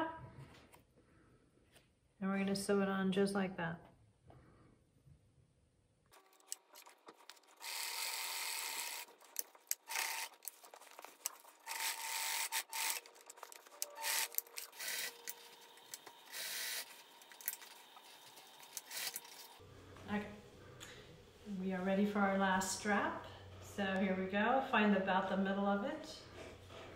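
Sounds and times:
sewing machine stitching: 6.1 - 19.6
crinkly fabric rustling: 10.3 - 11.7.

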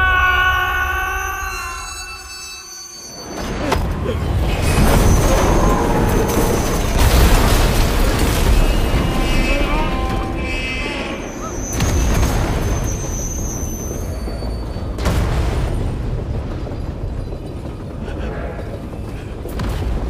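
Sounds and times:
carriages crashing: 0.0 - 20.0
train derailing rumble: 0.0 - 20.0.

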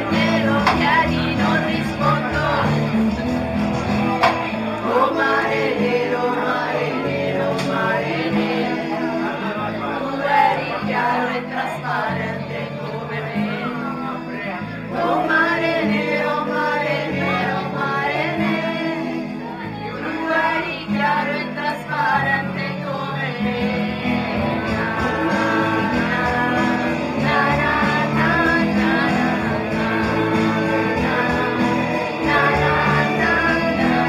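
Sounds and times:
people singing into microphones: 0.0 - 34.0.

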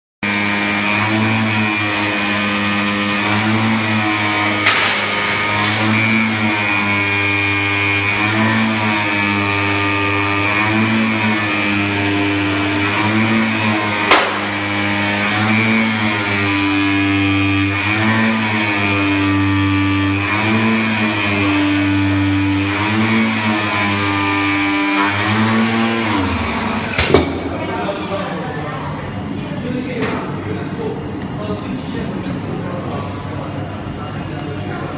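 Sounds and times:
cutter motor whines: 0.2 - 27.5
machine hum: 0.2 - 29.3.

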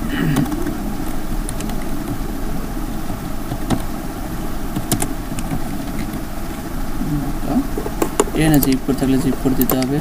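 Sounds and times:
low rumble and hum: 0.0 - 10.0
computer keyboard typing: 0.2 - 2.2, 3.4 - 3.9, 4.7 - 6.2, 7.7 - 10.0.

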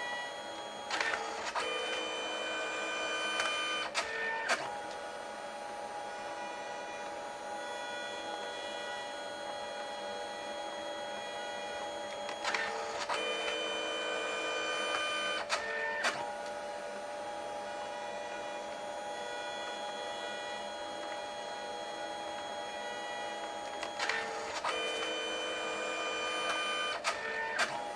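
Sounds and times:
printer motor whine: 0.0 - 27.9
printer clicks: 0.9 - 2.0, 12.1 - 13.6.

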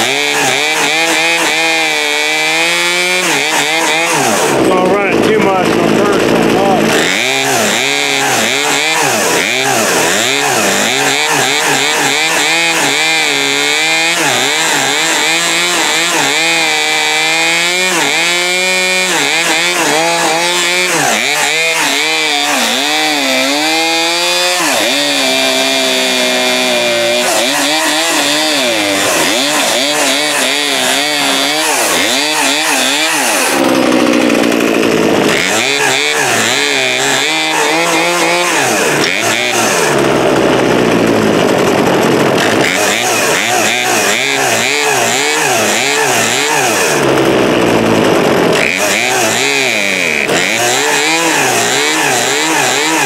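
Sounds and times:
chainsaw engine revving: 0.0 - 53.0.

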